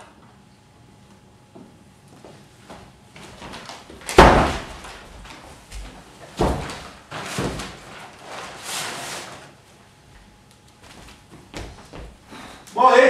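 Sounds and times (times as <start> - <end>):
door banging shut: 4.1 - 4.9.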